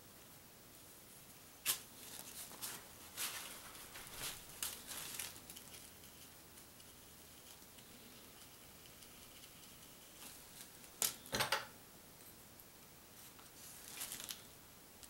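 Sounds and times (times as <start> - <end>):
hand rustling and scraping on cloth: 1.6 - 5.5.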